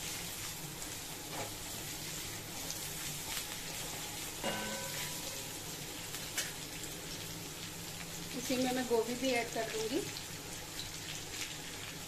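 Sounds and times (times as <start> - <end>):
vegetables sizzling in oil: 0.0 - 12.0
short ringing sound: 4.4 - 5.5.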